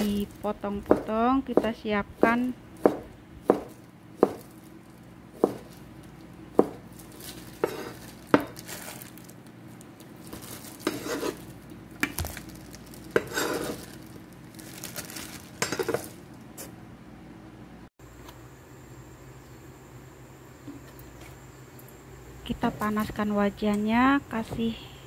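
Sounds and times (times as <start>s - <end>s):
cleaver chopping on cutting board: 0.9s - 4.4s, 5.4s - 5.7s, 6.6s - 6.8s
scraping and rustling: 6.9s - 9.4s, 10.0s - 16.8s.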